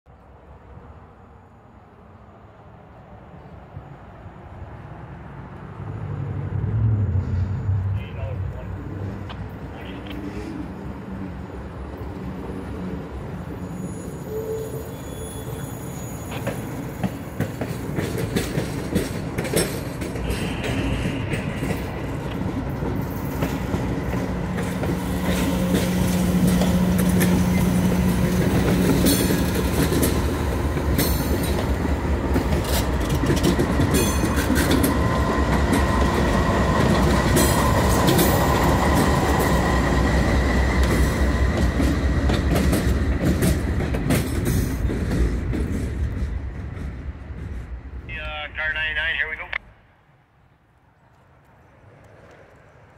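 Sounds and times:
diesel locomotive engines: 0.1 - 52.9
faint wheel squeal: 13.6 - 16.7
wheels clicking over rail joints: 16.3 - 40.0.

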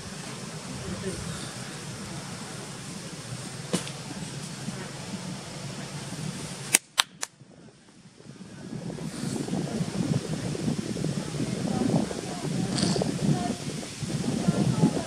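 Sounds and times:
sharp cracks: 6.7 - 7.4.

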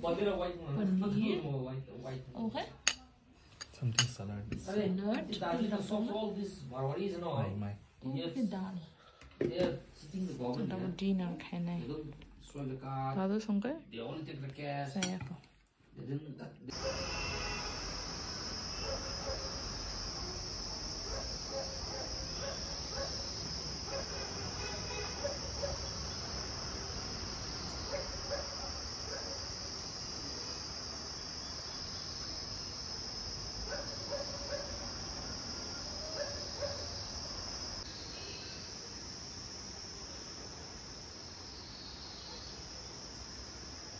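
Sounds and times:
insects chirring: 16.7 - 43.9.

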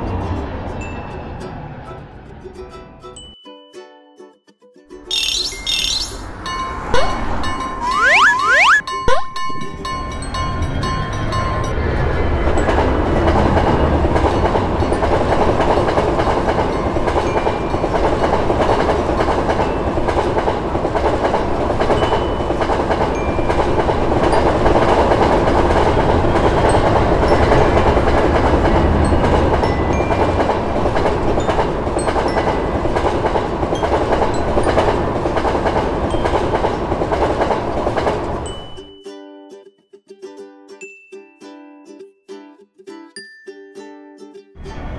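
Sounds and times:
train wheels rumbling on rails: 0.0 - 2.7, 8.9 - 38.9.

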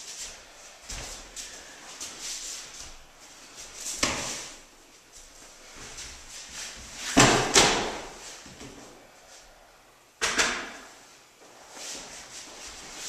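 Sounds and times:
feet shuffling: 0.0 - 9.7.

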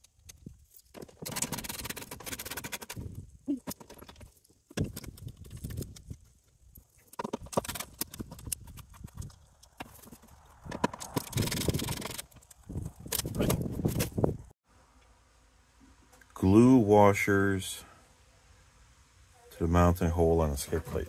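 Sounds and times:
rough scraping: 3.8 - 14.4.

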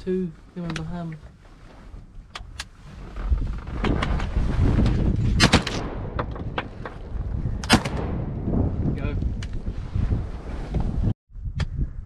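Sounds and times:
wind rumbling on microphone: 0.0 - 12.0
shotgun blasts: 5.4 - 6.2, 7.6 - 8.5.

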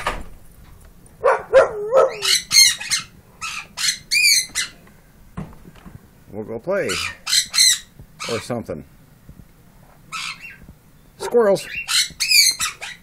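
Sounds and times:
harsh squawking animal calls: 1.2 - 4.8, 6.7 - 8.6, 10.1 - 13.0.

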